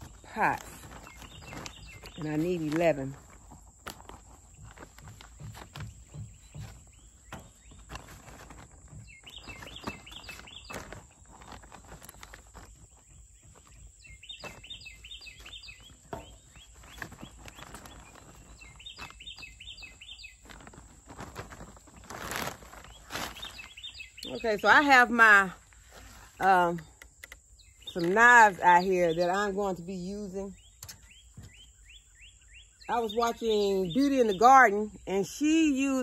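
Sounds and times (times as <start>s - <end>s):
plastic bag crinkling: 0.0s - 26.4s
songbird chirping: 0.0s - 36.0s.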